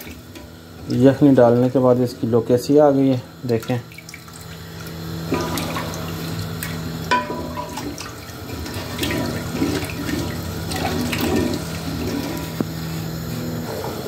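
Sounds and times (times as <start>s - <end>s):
steady low hum: 0.0s - 14.0s
gravy sloshing in a pot: 3.6s - 12.6s.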